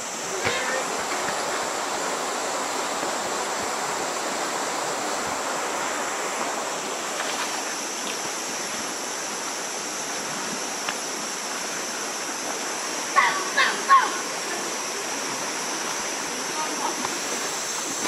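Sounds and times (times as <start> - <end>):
river rushing over stones: 0.0 - 18.0.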